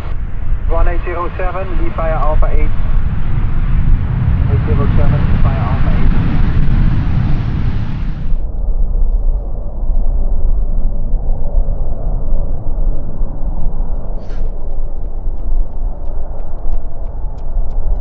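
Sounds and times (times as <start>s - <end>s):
jet engines rumbling: 0.0s - 18.0s.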